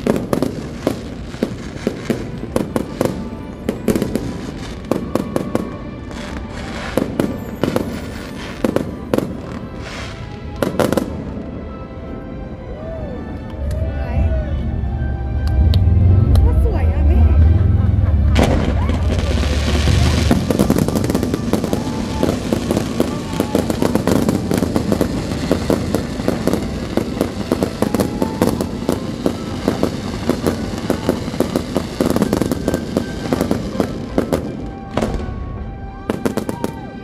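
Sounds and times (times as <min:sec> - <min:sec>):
fireworks bangs and crackling: 0:00.0 - 0:11.7, 0:16.3 - 0:37.0
music over sound system: 0:13.9 - 0:37.0.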